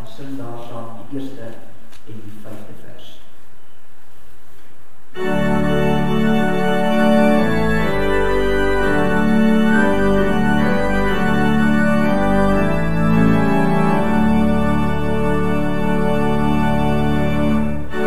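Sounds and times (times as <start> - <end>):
organ chords: 5.1 - 18.0.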